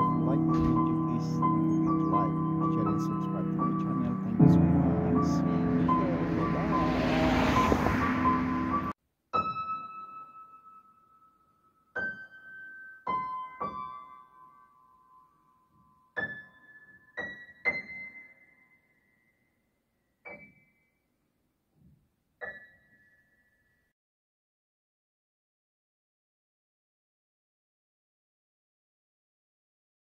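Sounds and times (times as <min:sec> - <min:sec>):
slow solo piano: 0:00.0 - 0:11.2, 0:11.9 - 0:18.5.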